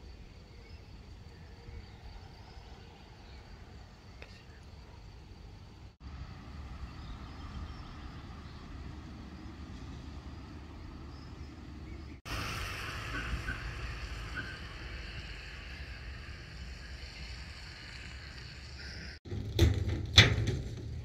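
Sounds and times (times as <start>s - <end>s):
bright hiss: 12.3s - 19.2s.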